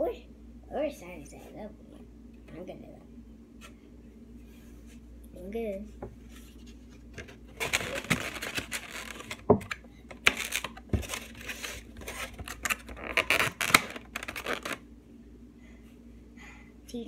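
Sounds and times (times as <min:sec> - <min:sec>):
plastic egg carton crinkling: 0:06.9 - 0:14.8.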